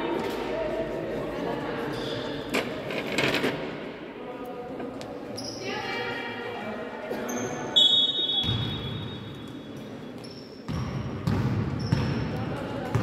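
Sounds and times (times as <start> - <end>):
referee's whistle: 7.8 - 9.3.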